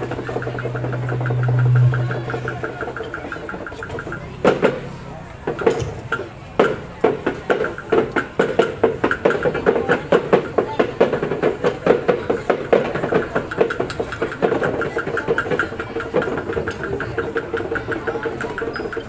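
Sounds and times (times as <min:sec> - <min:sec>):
sustained droning tone: 0:00.0 - 0:04.4
drum beating fast rhythm: 0:00.0 - 0:19.0.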